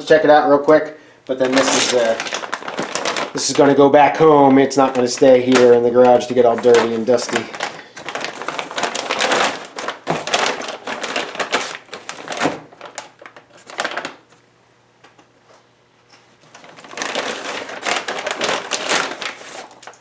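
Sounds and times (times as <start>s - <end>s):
plastic bag crinkling: 1.3s - 14.4s, 16.4s - 20.0s.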